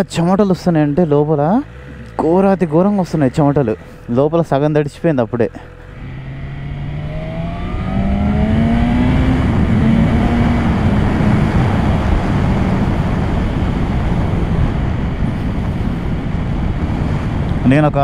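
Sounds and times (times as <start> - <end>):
motorcycle engine revving: 0.0 - 17.4
wind rush over microphone: 6.0 - 18.0.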